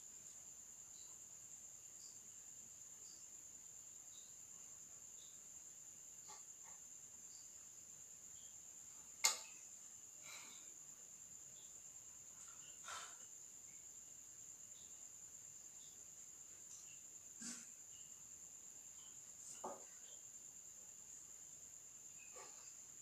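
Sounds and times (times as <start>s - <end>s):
cricket trilling: 0.0s - 23.0s.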